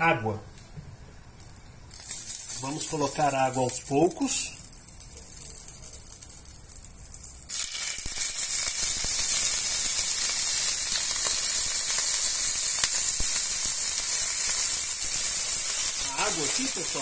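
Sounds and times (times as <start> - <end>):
sizzle and hiss of steam: 1.9 - 5.4, 7.5 - 17.0
water poured into hot pan: 1.9 - 17.0.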